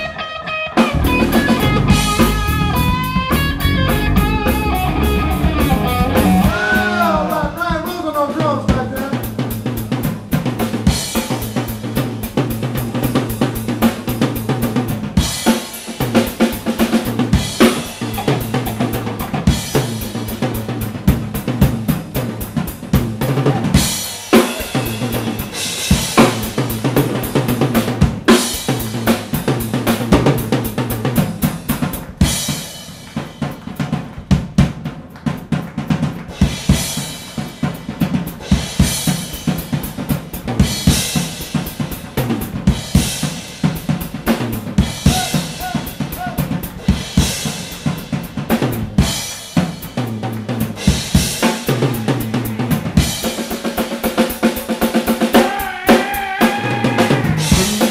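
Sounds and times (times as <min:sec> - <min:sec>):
drum kit playing: 0:00.0 - 0:57.9.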